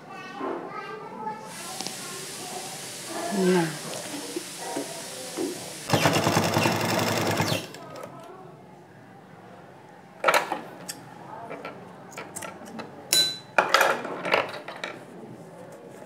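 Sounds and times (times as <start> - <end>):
sewing machine stitching: 5.9 - 7.9.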